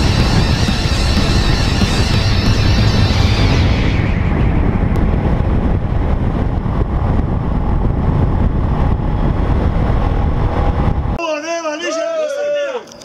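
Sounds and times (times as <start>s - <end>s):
motorcycle engine running: 0.0s - 3.7s
wind rush on microphone: 0.0s - 11.2s.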